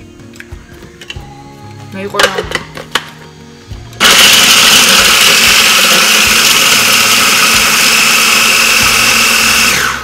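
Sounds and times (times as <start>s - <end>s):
food processor motor whining: 4.0s - 10.0s.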